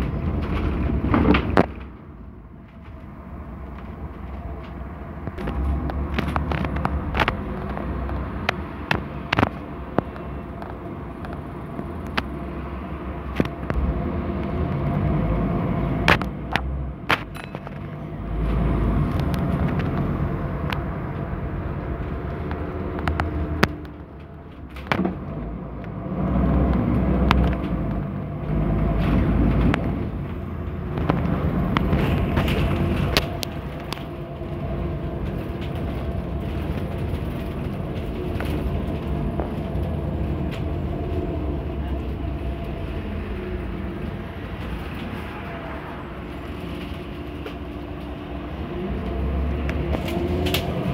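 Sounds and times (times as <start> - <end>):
bus body rattling and knocking: 0.0 - 50.9
bus diesel engine: 0.0 - 50.9.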